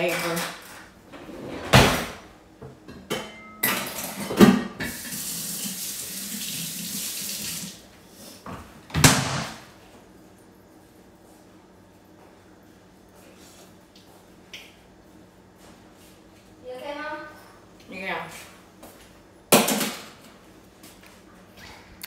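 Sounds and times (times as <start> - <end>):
kitchen tap running: 4.8 - 7.9.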